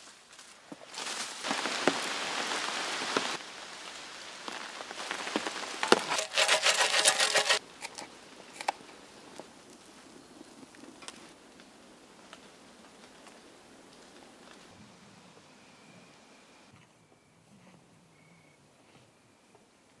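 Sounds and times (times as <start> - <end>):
rain-like pattering and crackling: 1.4 - 6.1, 10.7 - 14.7.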